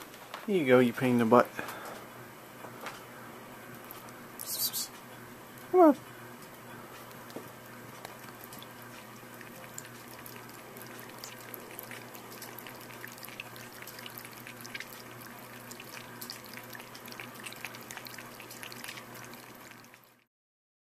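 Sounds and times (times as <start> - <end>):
cat lapping water: 7.0 - 20.2.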